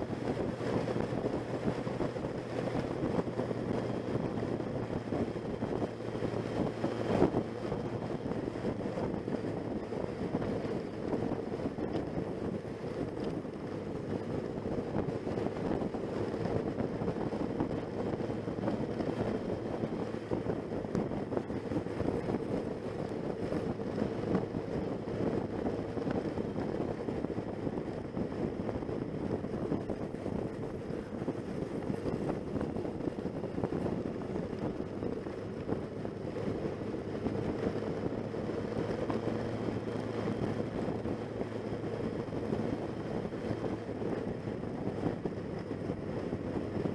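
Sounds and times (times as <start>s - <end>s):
motorcycle engine running: 0.0s - 46.9s
wind rushing over microphone: 0.0s - 46.9s.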